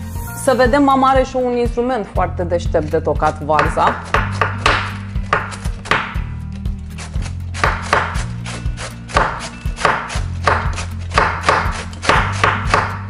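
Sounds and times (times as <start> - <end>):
cabbage shredder scraping: 6.8 - 12.8.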